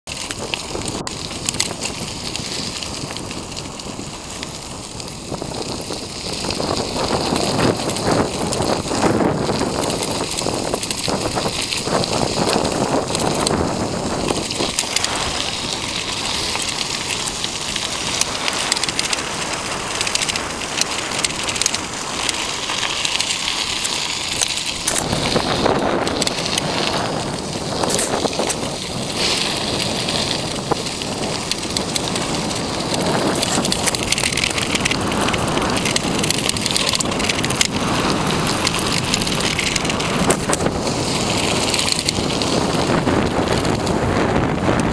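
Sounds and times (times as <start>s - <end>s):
bicycle tyre noise on road: 0.0s - 44.9s
bike rattles and clicks: 0.0s - 44.9s
wind rushing over microphone: 0.0s - 44.9s.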